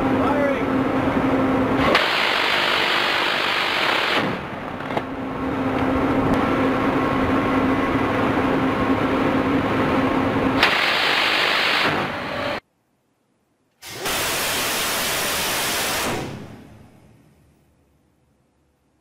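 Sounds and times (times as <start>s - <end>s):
machinery hum: 0.0s - 19.0s
wind-like rush of noise: 4.4s - 12.1s.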